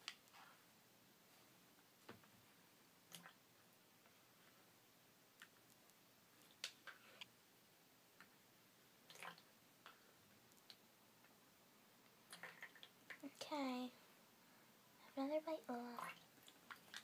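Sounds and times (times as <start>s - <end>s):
soft wet squishes: 3.0s - 4.7s, 9.0s - 11.4s, 12.0s - 13.5s, 14.8s - 17.0s.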